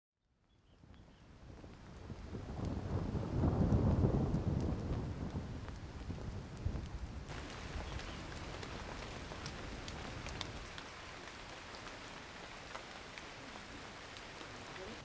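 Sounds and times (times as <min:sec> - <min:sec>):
steady rain falling: 0:00.4 - 0:15.0
low thunder rumble: 0:01.3 - 0:15.0
sharp drips: 0:07.3 - 0:15.0.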